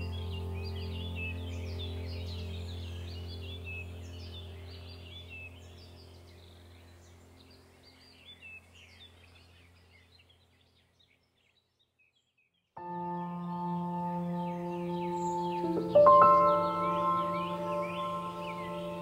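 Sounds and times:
ambient music drone: 0:00.0 - 0:08.4, 0:12.8 - 0:19.0
birdsong chirping: 0:00.0 - 0:19.0.

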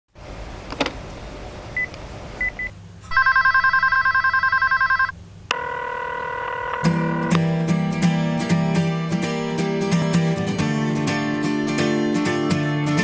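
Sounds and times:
telephone ringer warbling trill: 0:03.1 - 0:07.4
steady held tone: 0:04.9 - 0:07.4.

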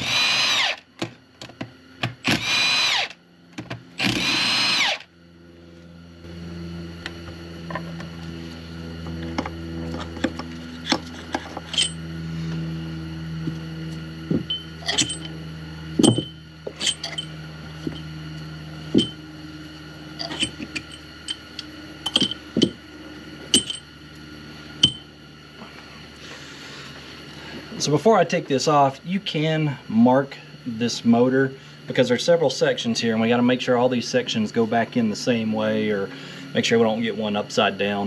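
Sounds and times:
steady low hum: 0:00.0 - 0:38.0
metal bolts clinking: 0:10.8 - 0:12.0, 0:14.5 - 0:15.3, 0:16.0 - 0:17.3, 0:19.0 - 0:19.2, 0:20.2 - 0:21.4, 0:22.1 - 0:22.8, 0:23.5 - 0:23.8, 0:24.8 - 0:25.0.

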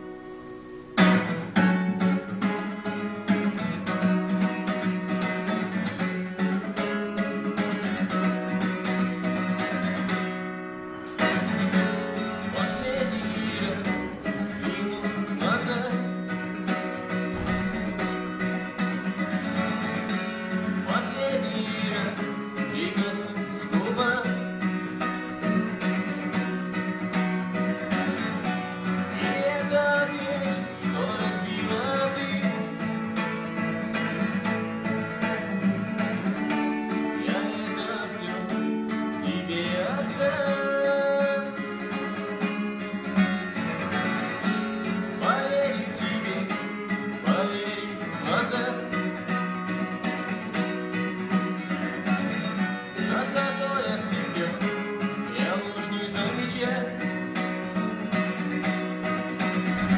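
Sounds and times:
acoustic guitar strummed: 0:00.0 - 0:59.9
man singing: 0:11.2 - 0:34.3, 0:36.4 - 0:58.8, 0:59.4 - 0:59.9.

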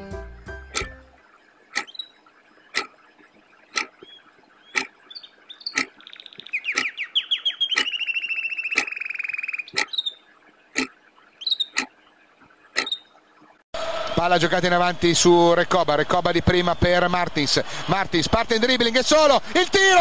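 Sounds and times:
sharp ticks: 0:00.7 - 0:13.1.

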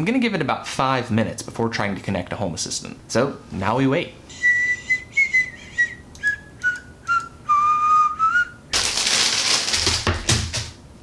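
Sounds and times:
man whistling: 0:04.3 - 0:08.7.

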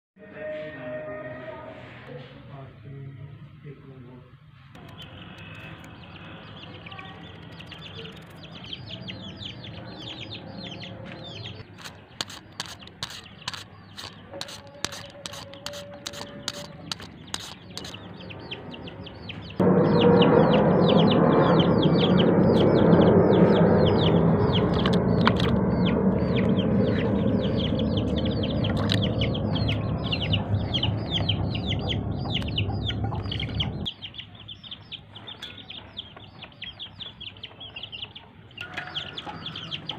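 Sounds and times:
small birds chirping: 0:04.8 - 0:39.9.

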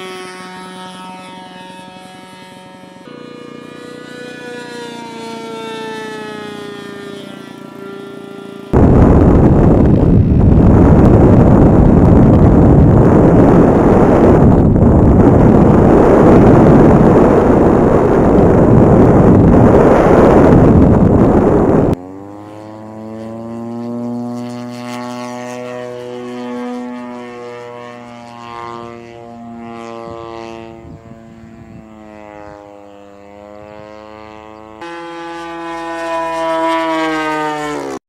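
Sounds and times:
model airplane engine droning: 0:00.0 - 0:38.0
rushing wind: 0:08.1 - 0:22.7, 0:23.3 - 0:32.7.

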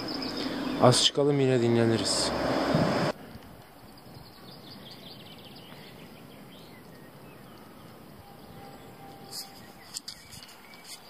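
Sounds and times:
faint bird chirps: 0:03.7 - 0:11.0
brief rustle: 0:09.0 - 0:11.0.

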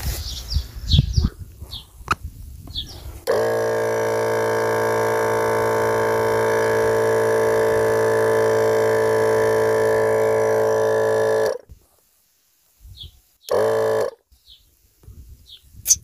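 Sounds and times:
air compressor running: 0:02.9 - 0:11.7, 0:13.5 - 0:14.2.

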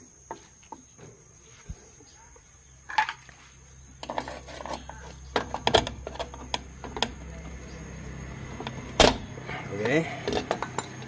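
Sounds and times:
tool scraping metal: 0:04.0 - 0:05.0.

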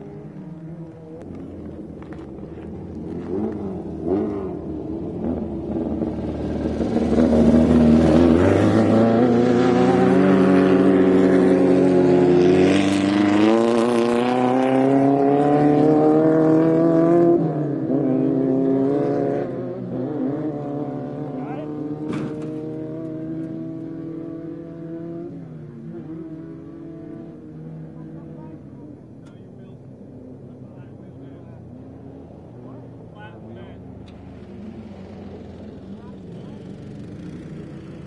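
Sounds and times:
race vehicle engines revving: 0:00.0 - 0:38.0.

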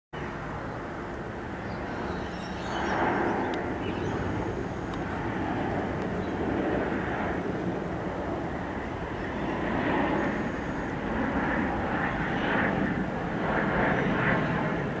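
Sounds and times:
jet engine rumble overhead: 0:00.2 - 0:15.0.

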